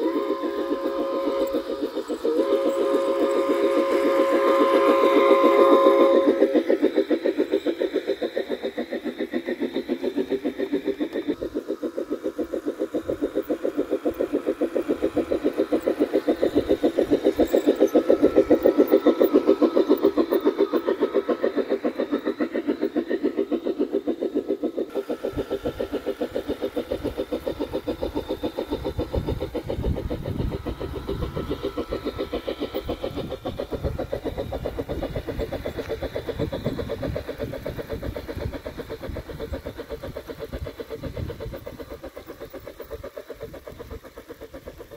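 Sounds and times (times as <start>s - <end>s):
model train rhythmic pulsing: 0.0s - 44.9s.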